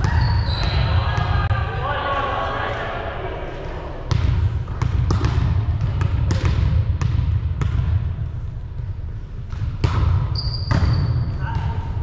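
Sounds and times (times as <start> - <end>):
sneaker squeak: 0.0 - 1.0, 10.2 - 11.8
low hum of hall: 0.0 - 12.0.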